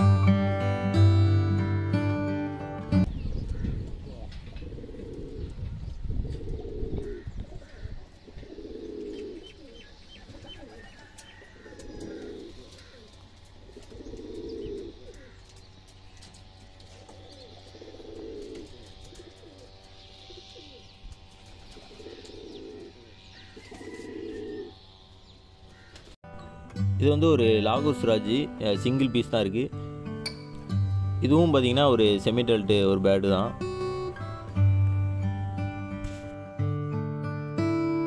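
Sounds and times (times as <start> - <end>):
small birds chirping: 3.0 - 29.8
pigeon cooing: 3.6 - 15.4, 16.9 - 24.8.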